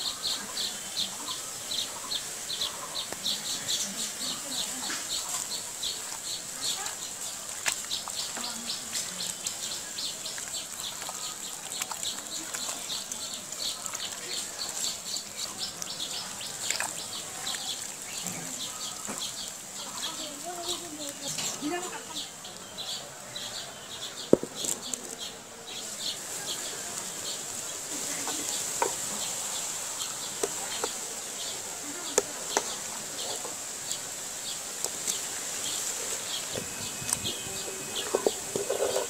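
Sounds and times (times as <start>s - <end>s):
steady high hiss: 0.0s - 11.5s, 12.2s - 39.0s
bird chirping: 34.4s - 39.0s.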